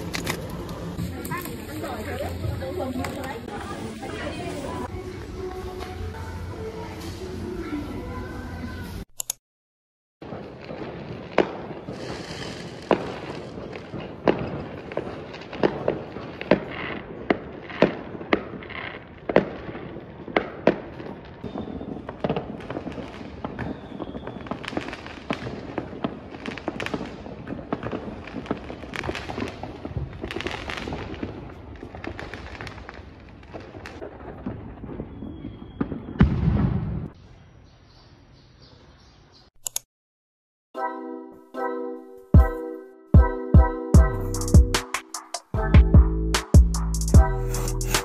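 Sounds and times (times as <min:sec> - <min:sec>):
fireworks crackling: 0:00.0 - 0:09.1, 0:10.2 - 0:37.2, 0:46.4 - 0:48.0
fireworks sharp bangs: 0:10.2 - 0:37.4.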